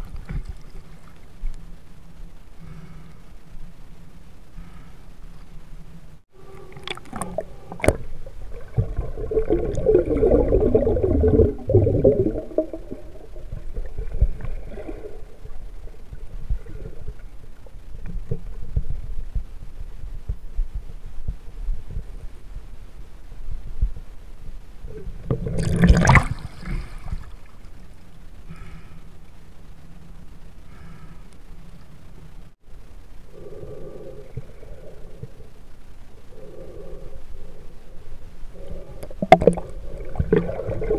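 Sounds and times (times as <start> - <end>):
water splashing and gurgling: 6.6 - 17.3, 25.0 - 27.6, 39.0 - 40.9.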